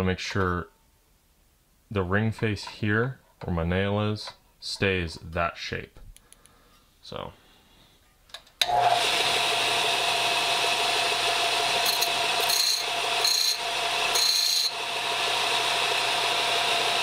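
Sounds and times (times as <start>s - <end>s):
disc sander motor humming: 8.6s - 17.0s
metal grinding on sanding disc: 11.8s - 14.8s.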